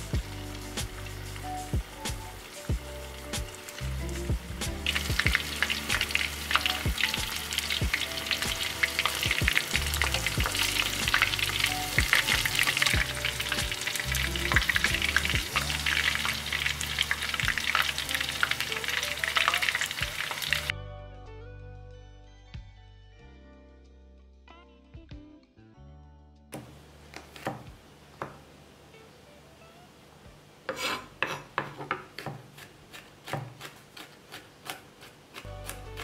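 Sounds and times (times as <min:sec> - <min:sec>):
fish deep-frying in hot oil: 0:00.0 - 0:20.7
soft background music: 0:00.0 - 0:30.5, 0:35.4 - 0:36.0.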